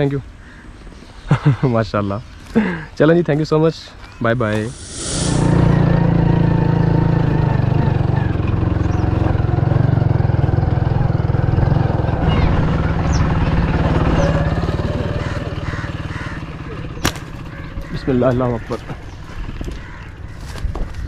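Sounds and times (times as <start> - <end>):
small motorcycle engine running: 4.7 - 21.0.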